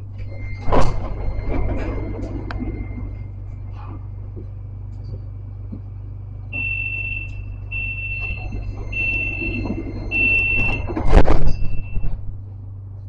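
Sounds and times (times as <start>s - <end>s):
tram door warning beeps: 0.0s - 4.6s, 6.5s - 12.4s
tram car low hum: 0.0s - 13.0s.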